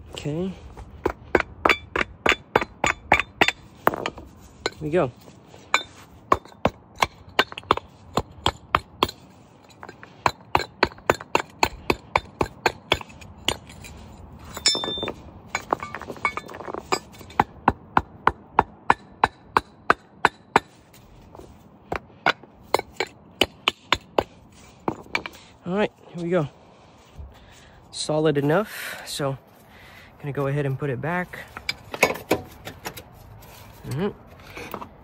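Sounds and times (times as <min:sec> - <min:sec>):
metallic clatter with ringing clink: 0:13.0 - 0:17.2.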